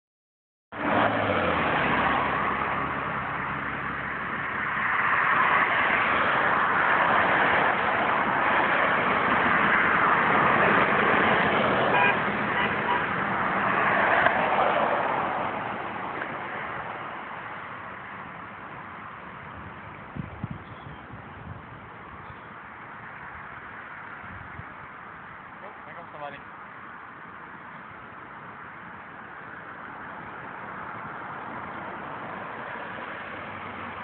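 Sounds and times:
road traffic passing: 0.7s - 34.0s
car horn toot: 11.9s - 13.2s.

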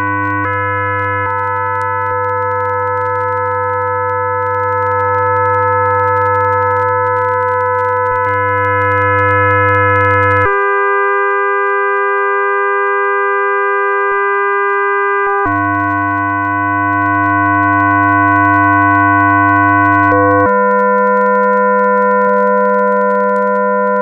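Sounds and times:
sustained drone tones: 0.0s - 1.4s, 15.4s - 20.5s
low hum: 15.5s - 20.5s.

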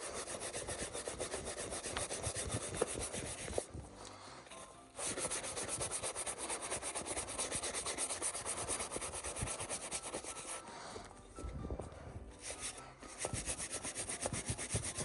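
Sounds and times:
brush scrubbing leather: 0.0s - 3.7s, 5.0s - 10.6s, 12.4s - 15.0s.

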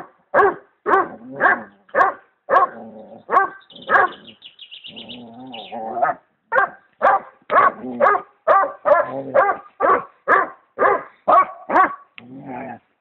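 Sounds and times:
dog barking: 0.0s - 4.2s, 5.9s - 12.1s.

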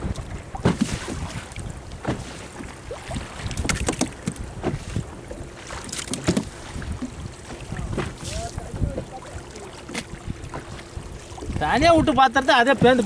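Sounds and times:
wind buffeting microphone: 0.0s - 2.0s, 6.2s - 13.0s
sharp knocks and splashes: 0.0s - 13.0s
water slapping boat hull: 0.0s - 13.0s.

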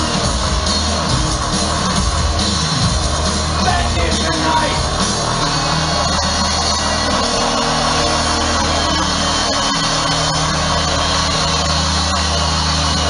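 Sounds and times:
heavy bass: 0.0s - 13.0s
live industrial music: 0.0s - 13.0s
vocals: 3.5s - 13.0s.

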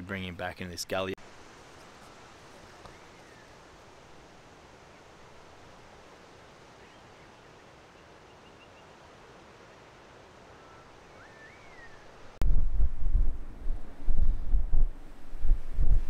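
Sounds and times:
distant bird chirps: 6.8s - 9.2s, 10.5s - 12.2s
whistled bird note: 10.6s - 12.1s
loud low rumble: 12.4s - 16.0s.

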